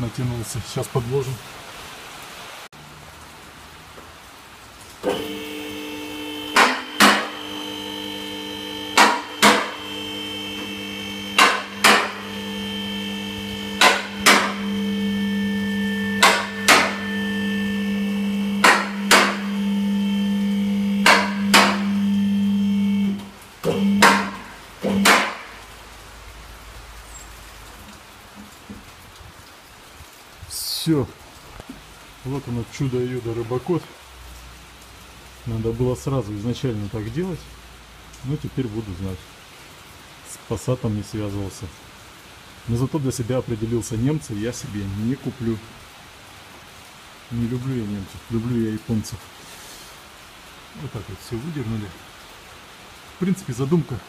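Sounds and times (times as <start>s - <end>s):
car lift motor and pump: 5.0s - 25.6s.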